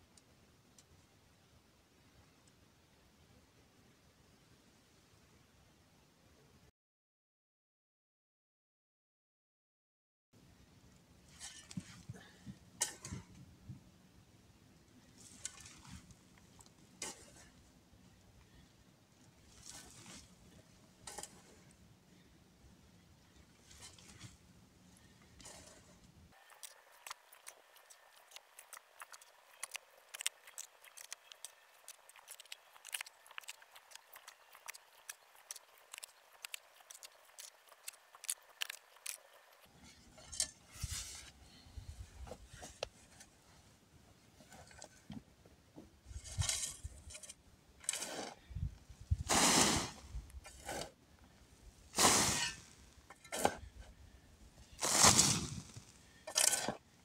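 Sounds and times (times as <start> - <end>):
scraping strokes: 11.3 - 12.2, 17.0 - 17.6, 19.5 - 20.4, 23.6 - 24.4, 25.4 - 43.6, 46.1 - 51.0, 51.8 - 53.7, 54.6 - 56.8.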